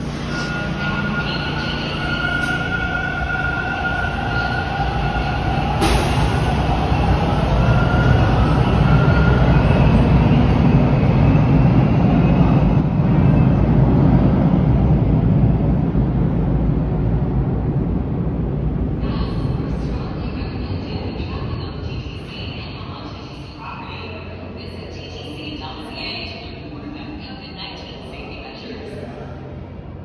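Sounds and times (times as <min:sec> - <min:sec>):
wheels rumbling on rail: 0:00.0 - 0:23.0.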